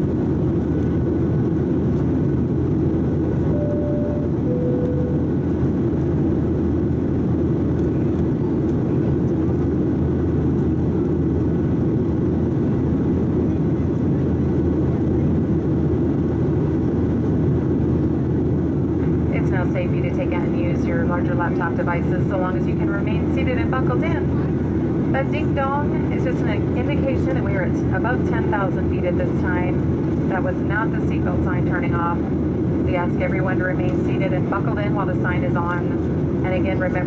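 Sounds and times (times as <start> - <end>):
airplane cabin engine noise: 0.0 - 37.0
two-tone cabin chime: 3.5 - 5.4.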